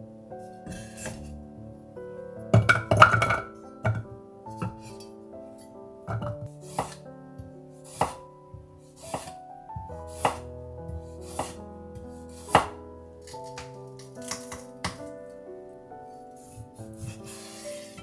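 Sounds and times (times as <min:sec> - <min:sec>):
background music: 0:00.0 - 0:18.0
knife chopping on wooden board: 0:06.2 - 0:07.0, 0:09.0 - 0:09.4, 0:10.1 - 0:10.4, 0:11.2 - 0:11.6, 0:12.4 - 0:13.7.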